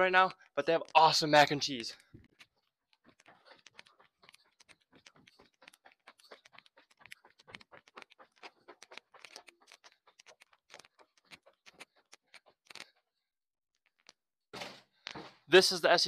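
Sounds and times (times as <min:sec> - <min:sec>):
running footsteps on hard floor: 0:01.5 - 0:13.0.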